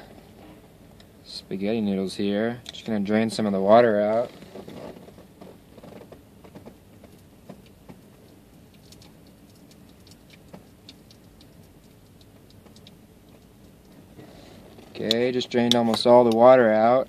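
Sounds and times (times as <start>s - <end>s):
low background hum: 0.0s - 17.0s
small ticks and clicks: 4.5s - 14.0s.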